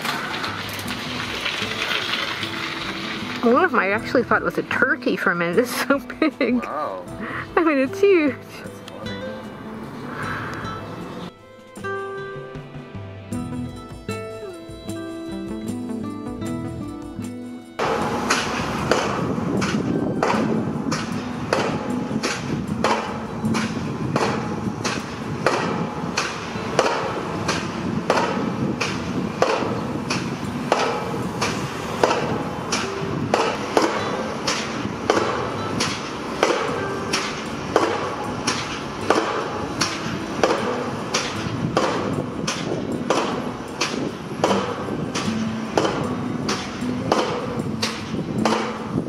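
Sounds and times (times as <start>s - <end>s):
pile driver blows with metallic ring: 17.8s - 49.0s.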